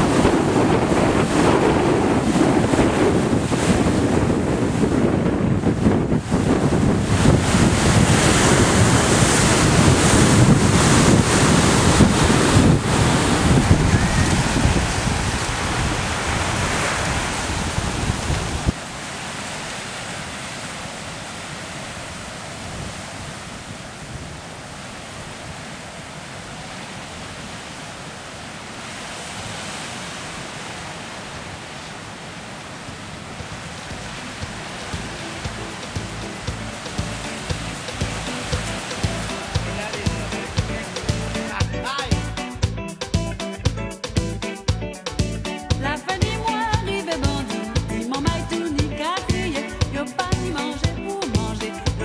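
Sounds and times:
wind buffeting microphone: 0.0 - 18.8, 30.6 - 41.3
small waves breaking on beach: 0.0 - 42.1
surf rushing over rocks: 0.0 - 42.4.

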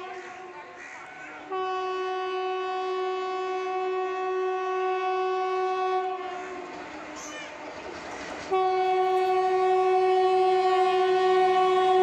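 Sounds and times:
electric locomotive horn blast: 1.5 - 6.8, 8.5 - 12.0.

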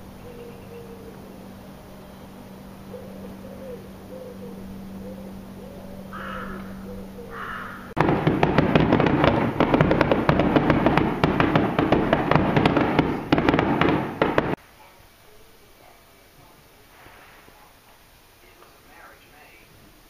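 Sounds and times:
crow cawing: 2.9 - 8.0
firework crackling: 7.9 - 14.8, 16.8 - 19.7.

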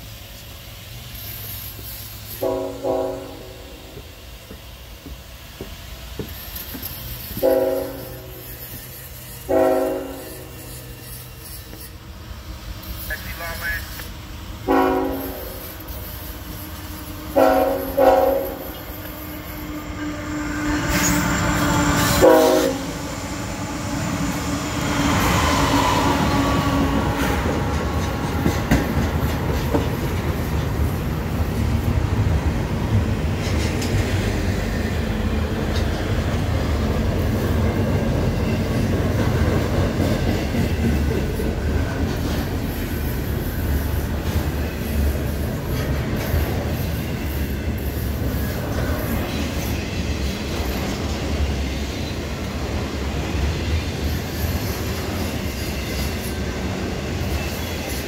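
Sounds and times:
train wheels rumbling on rails: 0.0 - 58.0
locomotive horn blasts: 2.4 - 3.8, 7.4 - 8.4, 9.5 - 10.4, 14.7 - 15.6, 17.3 - 18.9, 22.0 - 23.0.

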